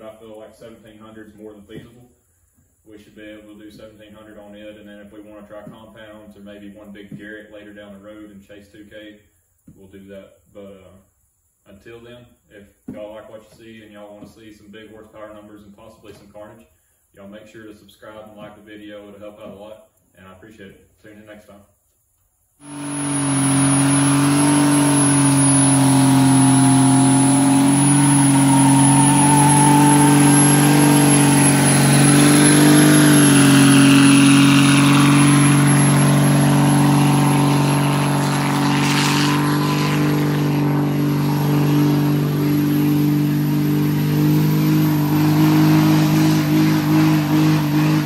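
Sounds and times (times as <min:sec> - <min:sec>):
diesel engine revving steadily: 0:22.6 - 0:48.0.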